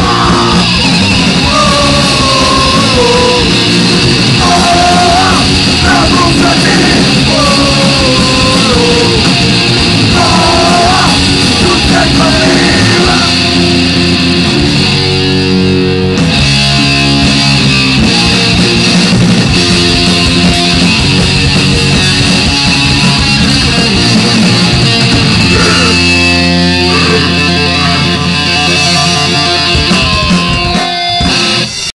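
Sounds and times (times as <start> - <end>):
singer shouting vocals: 0.0 - 0.7, 1.4 - 3.6, 4.4 - 9.4, 10.0 - 13.6, 25.4 - 26.2, 26.8 - 28.3
distorted electric guitars: 0.0 - 31.9
punk rock band playing live: 0.0 - 31.9
drums: 0.0 - 32.0.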